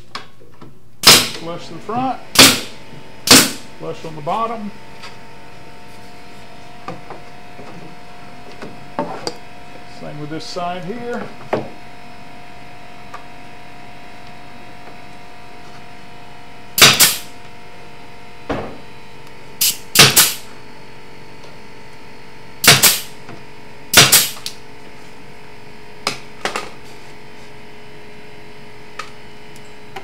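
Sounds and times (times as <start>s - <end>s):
nail gun firing into wood: 1.0s - 1.4s, 2.4s - 3.7s, 16.8s - 17.3s, 19.6s - 20.5s, 22.6s - 23.1s, 23.9s - 24.6s.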